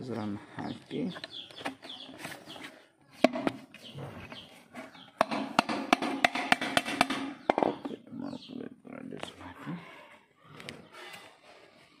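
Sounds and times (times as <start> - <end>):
plastic pipe knocking on wood: 3.2 - 3.6, 5.2 - 7.9.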